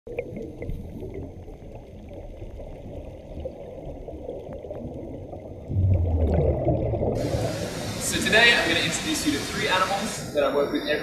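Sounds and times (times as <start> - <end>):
moving water washing: 5.7 - 10.4.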